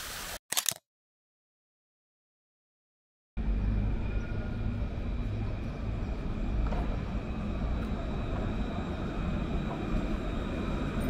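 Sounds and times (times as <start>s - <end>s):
high tram whine: 3.4s - 11.0s
tram rumble: 3.4s - 11.0s.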